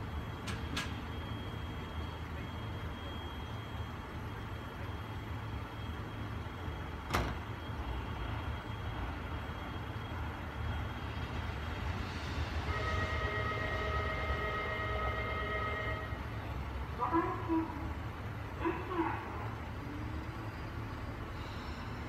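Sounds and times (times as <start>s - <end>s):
multi-tone whine: 0.0s - 11.8s
railcar engine idling: 0.0s - 22.0s.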